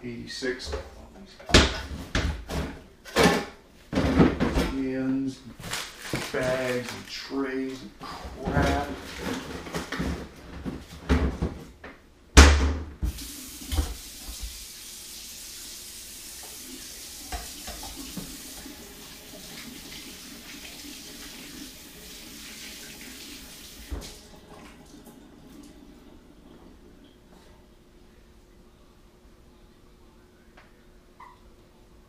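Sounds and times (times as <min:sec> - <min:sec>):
kitchen faucet running water: 0:13.1 - 0:27.1.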